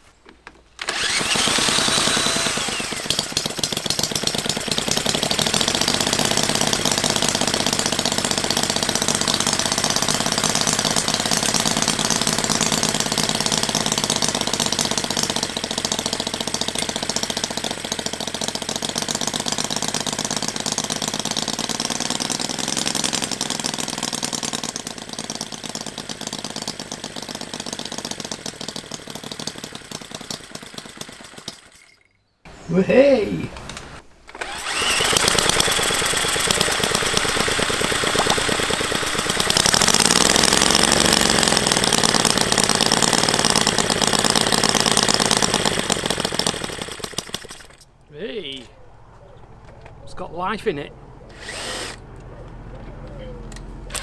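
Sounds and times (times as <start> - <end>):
electric drill whine: 0.8 - 3.3, 34.3 - 40.6, 51.3 - 52.0
small model engine running fast: 0.8 - 31.7, 34.4 - 47.8, 51.3 - 52.0.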